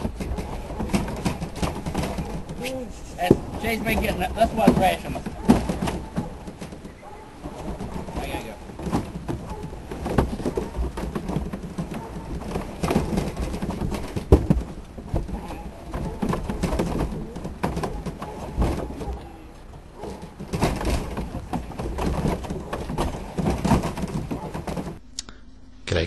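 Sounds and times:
knocks and clatter in metal race: 0.0 - 25.0
low steady hum: 25.0 - 26.0.

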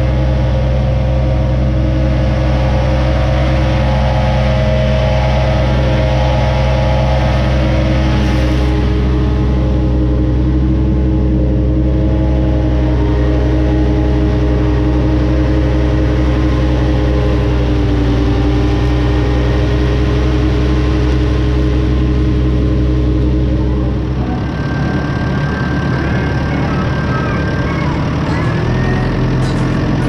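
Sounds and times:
disc mower cutting grass: 0.0 - 10.3
thin high whine: 0.0 - 30.0
tractor engine drone: 0.0 - 30.0.

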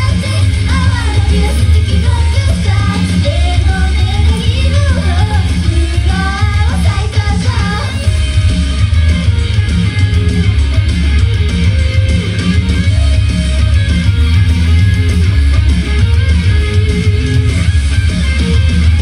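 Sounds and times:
person singing: 0.0 - 8.3
rock band playing live: 0.0 - 19.0.

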